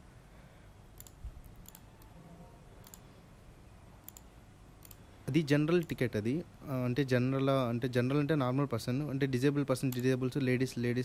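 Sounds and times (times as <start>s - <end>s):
computer mouse clicks: 1.0s - 2.1s, 2.8s - 3.1s, 4.0s - 5.0s.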